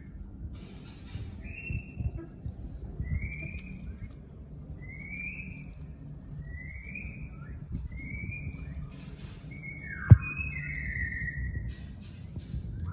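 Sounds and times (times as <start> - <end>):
low background rumble: 0.0 - 12.9
young peafowl peeping: 0.6 - 12.9.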